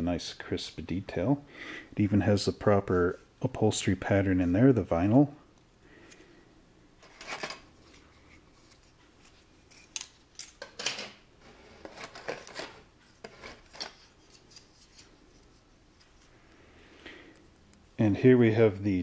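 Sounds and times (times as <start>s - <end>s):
plastic parts scraping: 7.0s - 15.2s.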